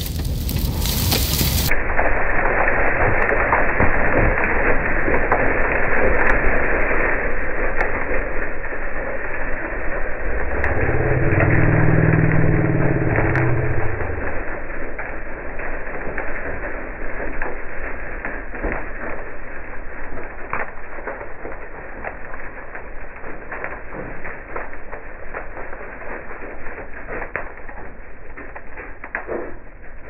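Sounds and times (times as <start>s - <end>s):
debris ticking on windshield: 0.0s - 1.7s.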